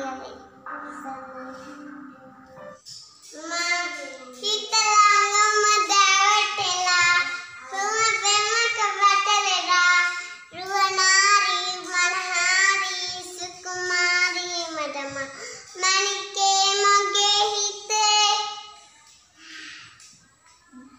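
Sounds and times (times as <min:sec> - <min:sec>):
child singing: 0:00.0 - 0:02.5, 0:03.2 - 0:20.1
child breathing: 0:10.1 - 0:10.5, 0:15.2 - 0:15.8, 0:19.4 - 0:20.0.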